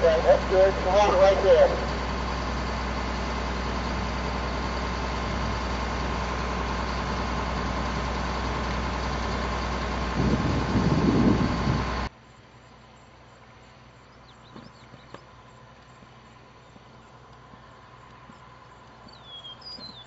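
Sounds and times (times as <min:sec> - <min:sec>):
truck engine humming: 0:00.0 - 0:20.0
bird chirping: 0:14.0 - 0:15.2, 0:19.0 - 0:20.0.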